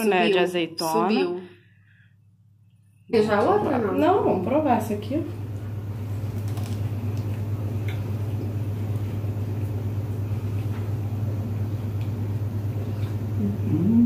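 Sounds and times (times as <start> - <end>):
low background hum: 0.0 - 14.0
person humming: 13.4 - 14.0.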